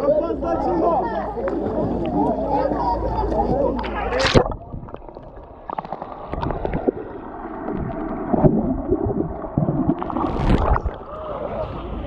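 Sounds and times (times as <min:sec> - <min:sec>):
underwater gurgling bubbles: 0:03.2 - 0:12.0.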